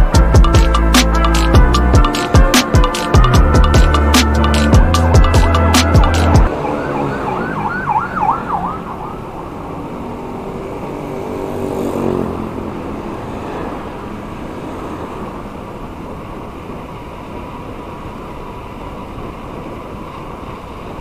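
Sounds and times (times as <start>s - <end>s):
music with heavy beat: 0.0s - 6.5s
traffic noise: 0.0s - 21.0s
siren yelping: 6.0s - 9.8s.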